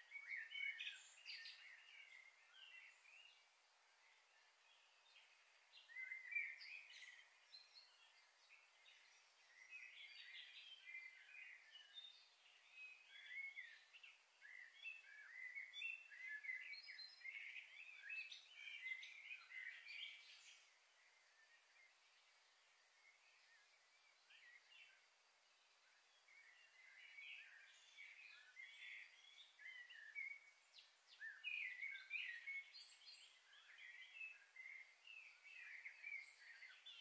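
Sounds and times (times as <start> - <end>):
faint small birds chirping: 0.0 - 37.0.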